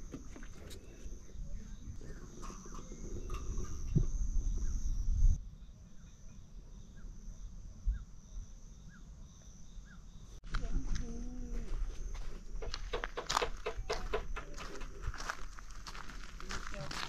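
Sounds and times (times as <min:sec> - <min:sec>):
wind rumbling on microphone: 0:00.0 - 0:05.4, 0:10.4 - 0:17.0
insects droning: 0:00.0 - 0:17.0.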